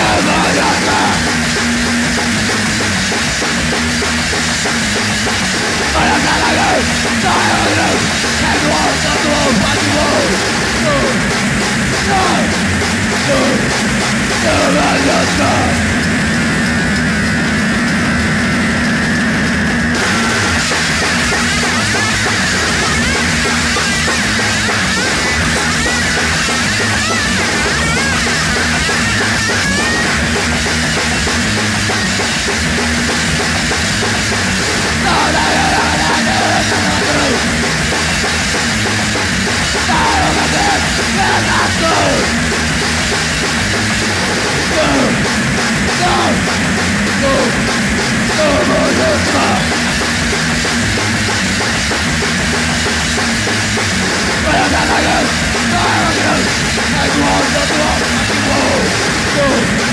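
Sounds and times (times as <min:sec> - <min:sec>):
hardcore punk music: 0:00.0 - 0:59.9.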